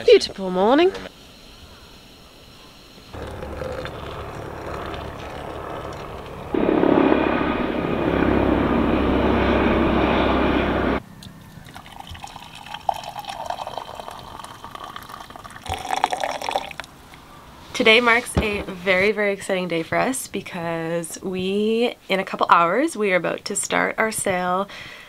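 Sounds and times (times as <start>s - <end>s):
coffee splashing into a mug: 3.2s - 6.5s, 11.6s - 16.9s
hot water pouring into a pot: 3.2s - 6.6s, 11.6s - 16.9s
helicopter engine and rotor: 3.2s - 11.0s.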